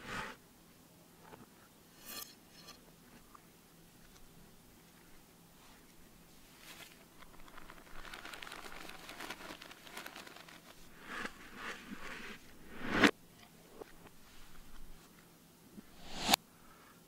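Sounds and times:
plastic pouch crinkling: 6.8s - 12.2s.

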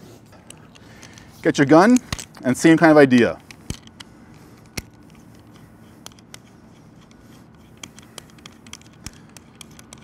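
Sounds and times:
plastic and metal clicks: 3.1s - 10.0s.

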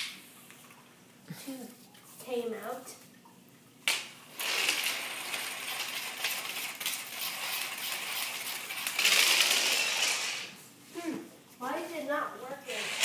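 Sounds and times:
marbles rattling in plastic holder: 8.8s - 10.4s.

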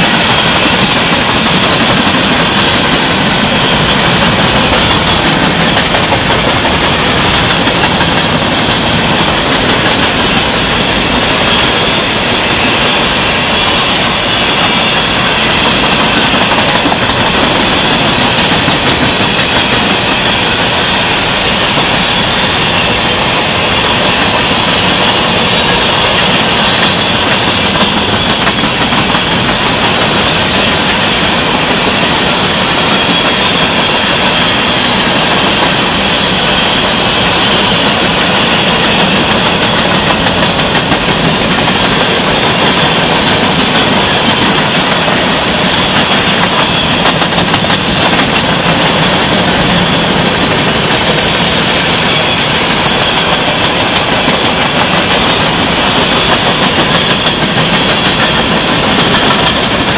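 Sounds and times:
wheels clicking over rail joints: 0.0s - 52.0s
train wheels roaring on rails: 0.0s - 59.9s.

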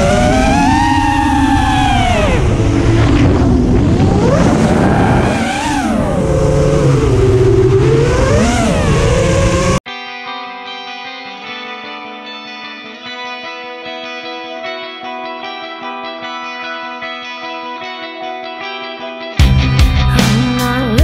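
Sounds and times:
quadcopter motors whining: 0.0s - 9.8s
rush of air on microphone: 0.0s - 9.8s
electric guitar music: 0.0s - 21.0s.

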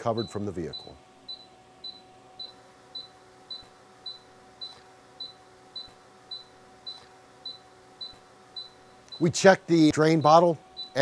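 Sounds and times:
faint steady hum: 0.0s - 11.0s
short high beeps: 10.2s - 11.0s.

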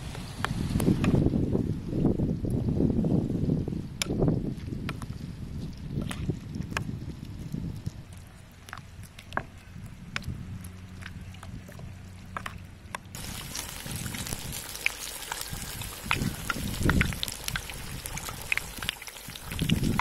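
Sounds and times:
pork deep-frying in hot oil: 0.0s - 12.4s, 13.1s - 20.0s.

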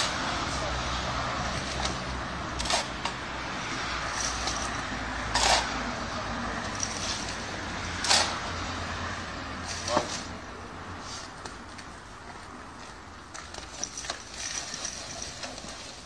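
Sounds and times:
low rumble of road traffic: 0.0s - 16.0s
shovel scraping soil: 1.4s - 3.2s, 4.0s - 5.8s, 6.7s - 8.5s, 9.6s - 10.4s.

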